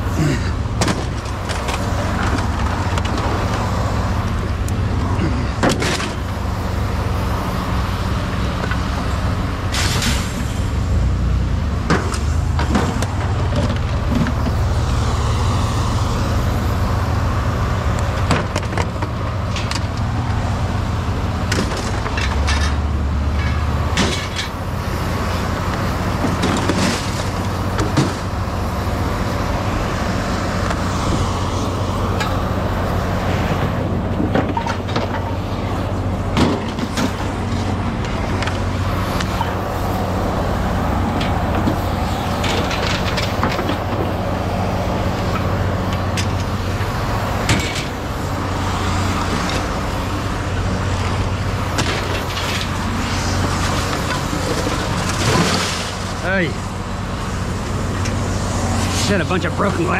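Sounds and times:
low engine drone: 0.0s - 59.9s
road noise: 0.0s - 59.9s
knocks and rattles: 21.5s - 24.6s.

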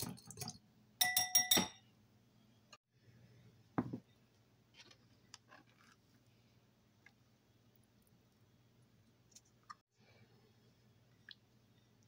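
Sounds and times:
utensil clinking glass bowl: 0.0s - 1.9s.

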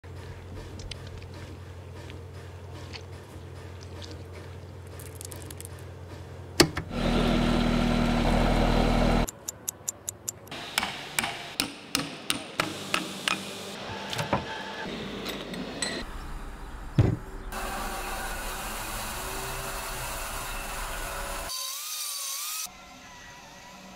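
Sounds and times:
polisher grinding: 6.9s - 9.3s
knocks and heavy thud: 17.0s - 17.3s
loud steady machine noise: 17.6s - 21.5s.

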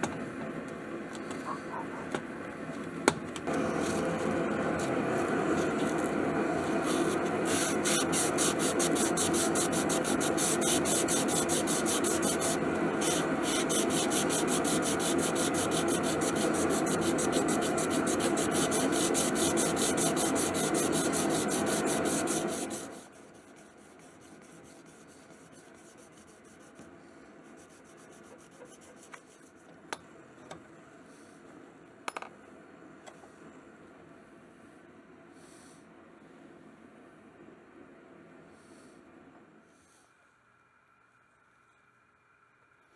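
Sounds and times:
sanding block scratching on steel: 6.7s - 26.8s, 27.5s - 29.6s.

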